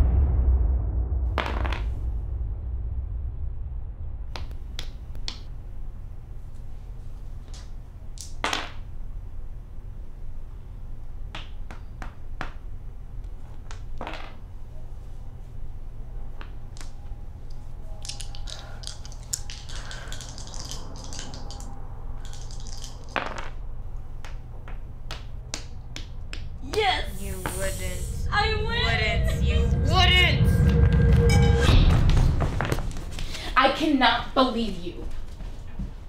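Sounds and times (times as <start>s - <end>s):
low hum: 0.0s - 8.2s, 12.2s - 36.0s
plastic pawns tapped: 4.4s - 5.5s, 7.4s - 8.8s, 18.0s - 21.6s, 22.2s - 23.6s, 24.2s - 26.5s
dice clicking onto board: 7.4s - 8.8s, 16.4s - 17.0s, 18.0s - 23.6s, 24.2s - 26.5s
dice rattling in hand: 7.4s - 8.8s, 16.4s - 23.6s.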